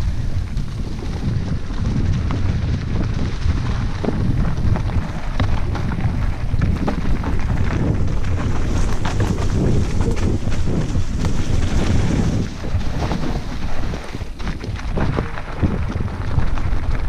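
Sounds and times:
bike clicks and rattles: 0.0s - 17.0s
wind buffeting microphone: 0.0s - 17.0s.

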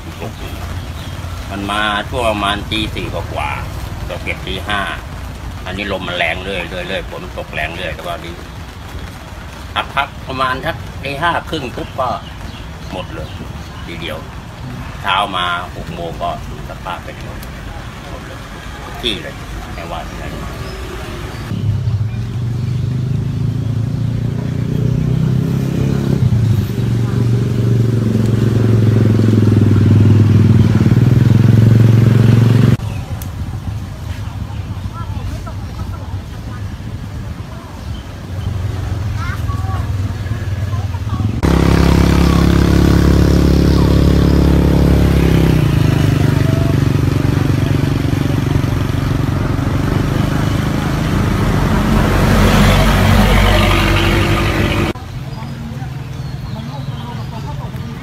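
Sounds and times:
engine humming steadily: 40.7s - 55.0s.

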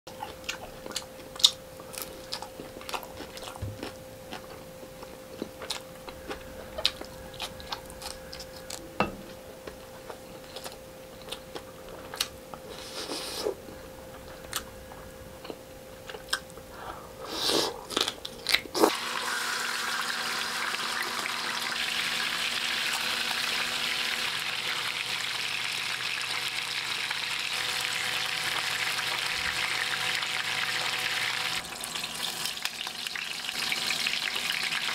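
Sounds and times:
chewing and crunching: 0.1s - 18.9s
fish sizzling in hot oil: 18.9s - 34.9s.

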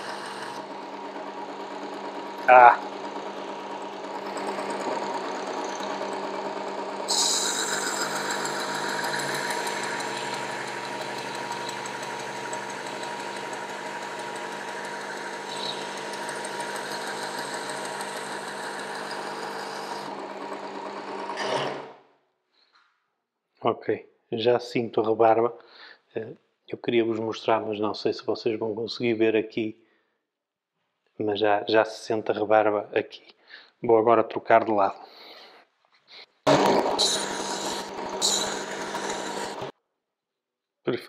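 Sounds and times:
sharpener motor hum: 0.0s - 21.9s, 36.5s - 39.7s
motor running down: 0.0s - 22.0s, 36.5s - 39.7s.

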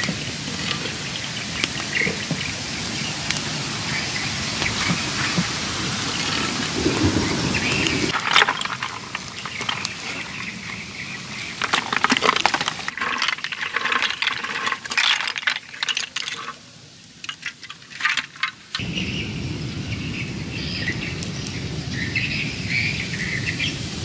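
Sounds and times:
snail shells clattering in basket: 0.0s - 2.5s, 7.7s - 18.8s
steady hiss: 0.0s - 24.0s.

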